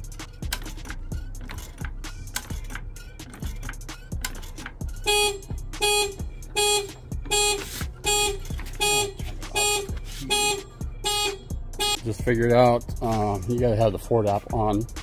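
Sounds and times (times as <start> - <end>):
car alarm horn honking: 5.0 - 12.3.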